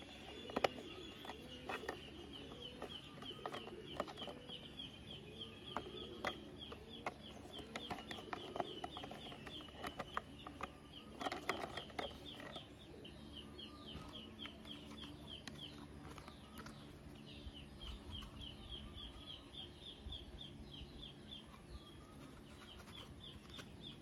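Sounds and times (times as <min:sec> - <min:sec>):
plastic toy parts clicking: 0:00.0 - 0:04.7, 0:05.7 - 0:12.8
bird chirping: 0:00.0 - 0:24.0.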